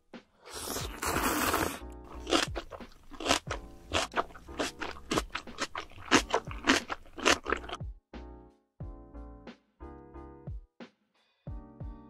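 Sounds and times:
slurping noodles: 0.4 - 7.8
chewing with crunching bites: 0.5 - 7.8.

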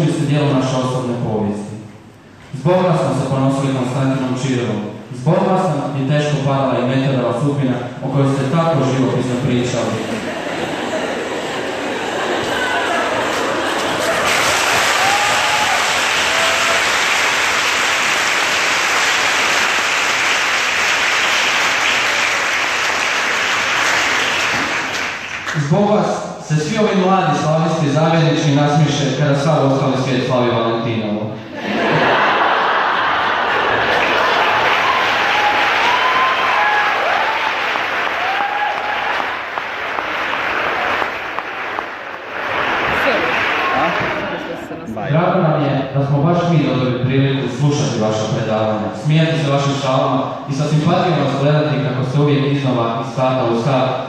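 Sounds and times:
audience applauding: 10.1 - 25.7, 32.0 - 44.7.

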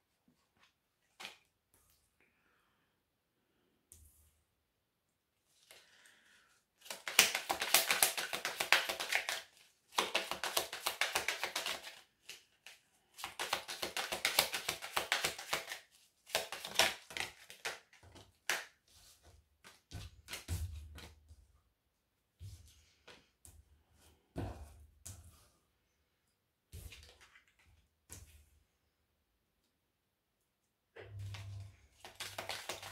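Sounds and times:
cards tapping and thumping: 6.8 - 18.8, 19.6 - 21.2, 32.0 - 32.9
cards being shuffled: 6.8 - 21.2, 31.3 - 32.9.

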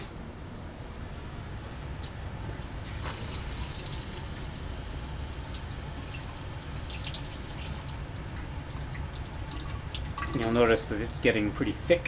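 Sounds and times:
faint liquid drips: 2.8 - 10.9.

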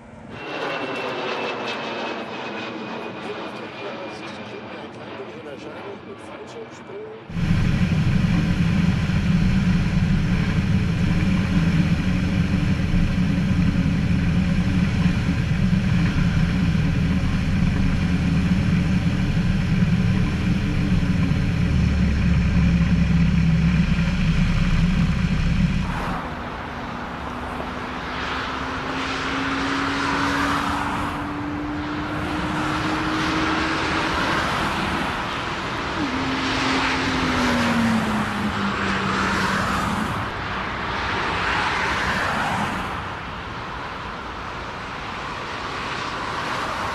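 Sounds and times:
propeller engine running: 0.0 - 43.6
jet airliner landing: 0.0 - 46.9
gusty wind noise: 7.3 - 27.8
wind rush: 7.3 - 43.8.

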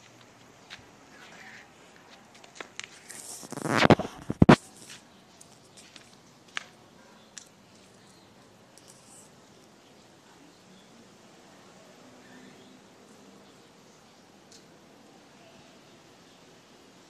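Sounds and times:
rustling scrape on microphone: 2.5 - 5.0.

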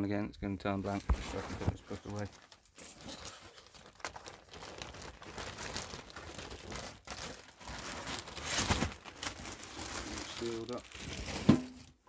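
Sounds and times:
book rustling and crinkling: 0.9 - 11.9.

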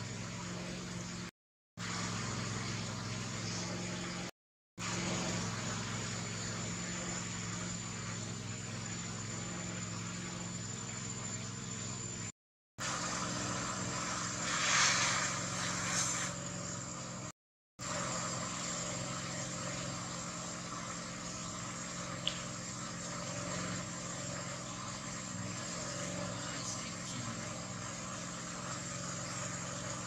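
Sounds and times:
motor hum with high whine: 0.0 - 30.0
steady hiss: 13.9 - 16.3.

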